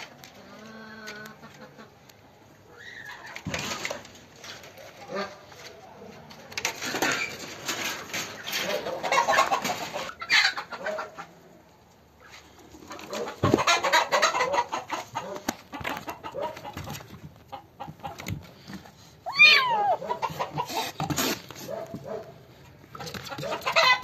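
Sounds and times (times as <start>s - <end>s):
chickens clucking: 0.0s - 5.7s, 6.7s - 24.0s
rustling and scraping: 3.3s - 10.1s, 14.8s - 24.0s.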